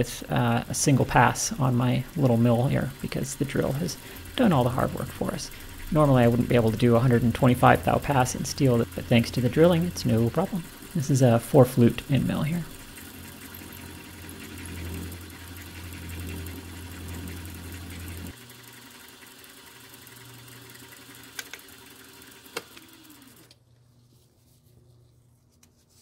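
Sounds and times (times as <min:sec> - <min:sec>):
milling machine cutting steel: 0:00.1 - 0:18.4.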